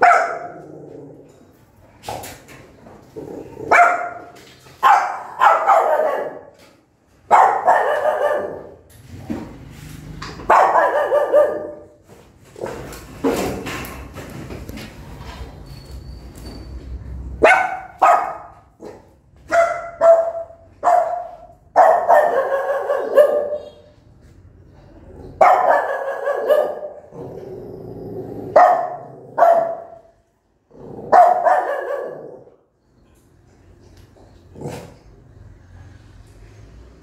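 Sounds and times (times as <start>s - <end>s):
dog barking: 0.0s - 0.6s, 3.7s - 6.6s, 7.3s - 8.8s, 10.5s - 12.0s, 17.4s - 23.9s, 25.4s - 27.1s, 28.6s - 30.1s, 31.1s - 32.5s.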